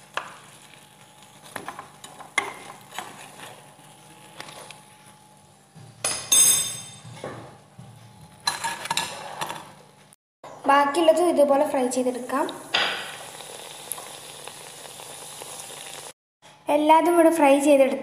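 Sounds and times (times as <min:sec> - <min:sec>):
oil sizzling: 0:00.0 - 0:04.5, 0:11.7 - 0:16.2
wire skimmer scraping frying pan: 0:00.6 - 0:05.0, 0:08.4 - 0:09.9.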